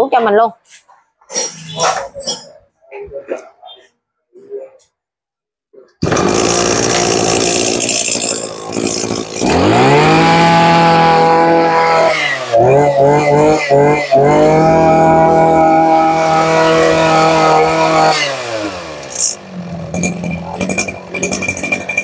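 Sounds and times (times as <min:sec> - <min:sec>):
brushcutter engine running: 0:06.0 - 0:22.0.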